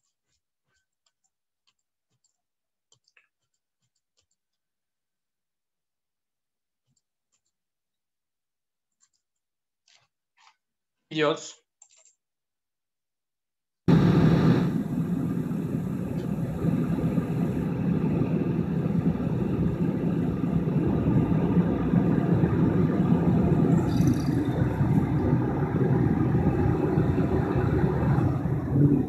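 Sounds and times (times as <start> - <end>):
machine tool humming: 13.9 - 29.0.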